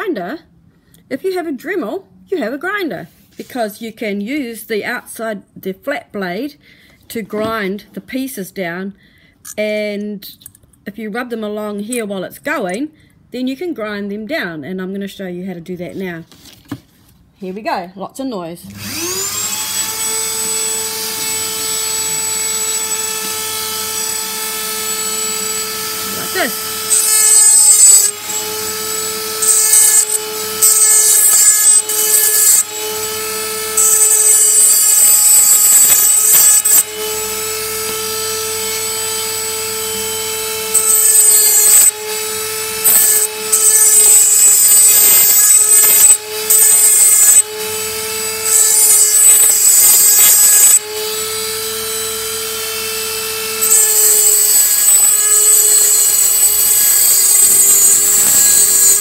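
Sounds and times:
rotary tool motor whining: 0:18.7 - 0:59.0.

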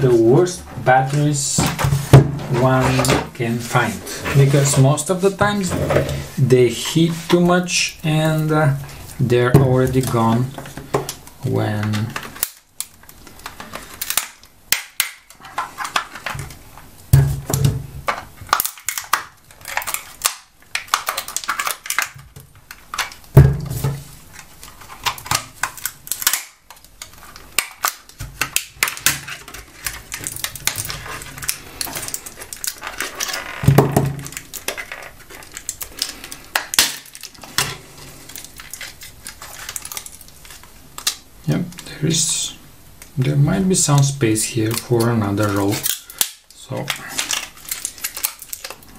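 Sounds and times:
plastic casing cracking apart: 0:09.7 - 0:41.9, 0:43.9 - 0:48.9.

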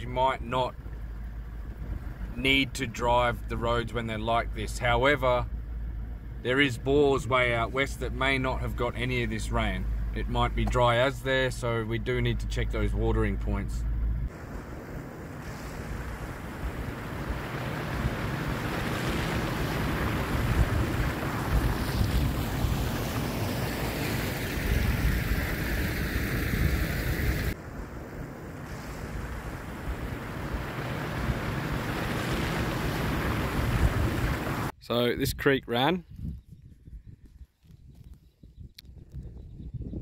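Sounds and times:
vehicle driving on dirt track: 0:00.0 - 0:34.7
wind buffeting microphone: 0:14.4 - 0:34.7, 0:36.0 - 0:40.0.

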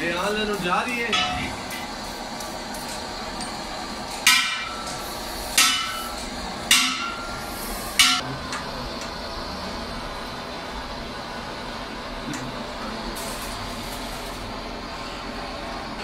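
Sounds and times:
hammer striking metal: 0:01.1 - 0:01.9, 0:04.2 - 0:08.7.

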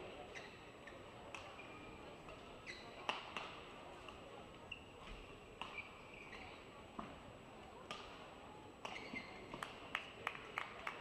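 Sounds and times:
shoes squeaking on court: 0:00.3 - 0:01.9, 0:02.6 - 0:03.0, 0:04.7 - 0:06.6, 0:08.8 - 0:09.6.

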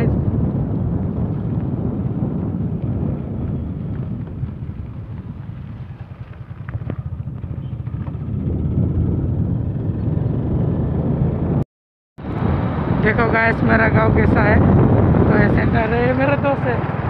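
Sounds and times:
wind buffeting microphone: 0:00.0 - 0:11.6, 0:12.2 - 0:17.0
motorcycle engine running: 0:00.1 - 0:11.6.

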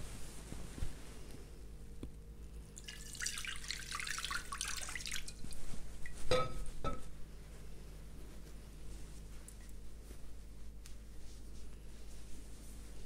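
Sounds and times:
water splashing into a bowl: 0:02.8 - 0:05.6.

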